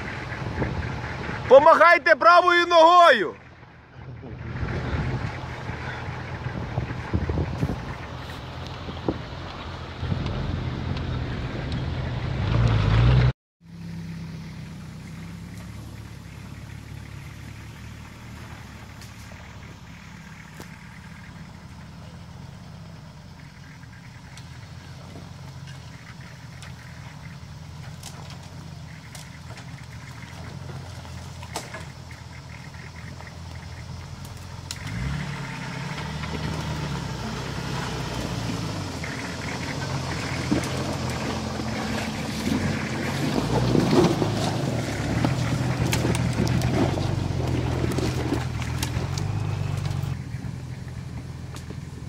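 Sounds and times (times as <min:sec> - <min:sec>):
suv engine running at low revs: 0:00.0 - 0:52.0
faint clicks: 0:27.8 - 0:34.9.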